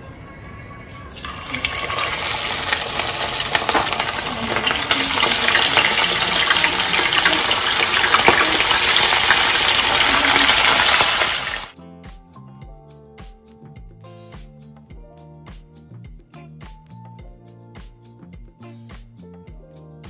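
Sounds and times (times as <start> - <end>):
background music: 0.0 - 20.0
fish sizzling in hot oil: 1.1 - 11.8.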